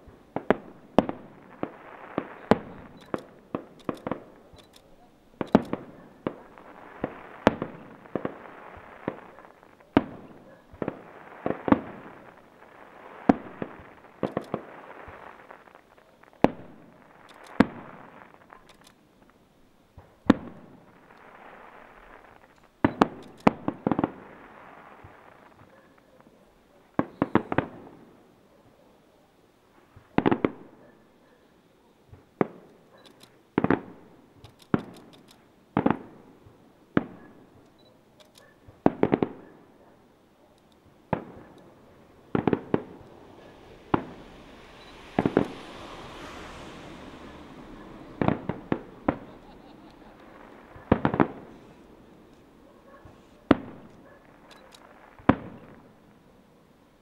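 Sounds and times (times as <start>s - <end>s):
fireworks bangs with echo: 0.0s - 4.6s, 5.3s - 28.3s, 30.0s - 31.1s, 32.1s - 32.9s, 33.5s - 40.2s, 40.8s - 56.3s
hissing noise: 40.6s - 55.2s.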